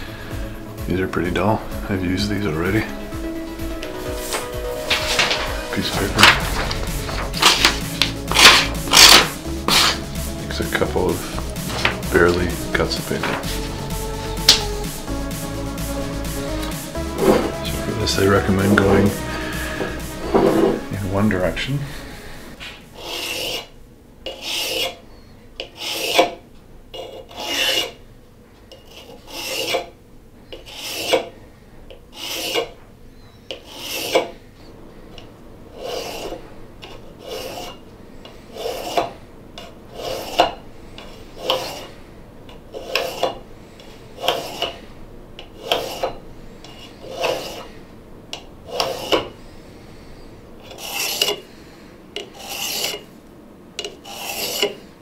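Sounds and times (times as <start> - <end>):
blade scraping on sharpener: 7.4 - 10.1, 23.0 - 28.0, 28.7 - 31.3, 32.1 - 32.8, 33.4 - 34.4, 35.8 - 37.8, 38.5 - 42.0, 42.7 - 43.4, 44.2 - 44.8, 45.5 - 47.8, 48.7 - 49.3, 50.6 - 51.4, 52.2 - 53.1, 53.8 - 54.9.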